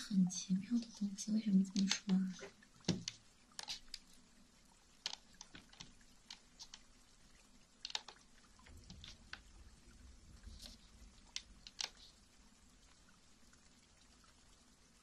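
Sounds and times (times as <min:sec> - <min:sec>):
low room hum: 0:00.0 - 0:15.0
small clicks and taps: 0:01.7 - 0:04.1, 0:05.0 - 0:06.9, 0:07.8 - 0:09.5, 0:10.5 - 0:12.2.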